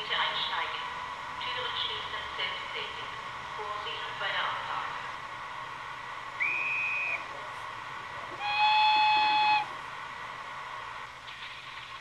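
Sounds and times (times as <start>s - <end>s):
steady electric hum: 0.0s - 12.0s
short high whistle: 6.4s - 7.3s.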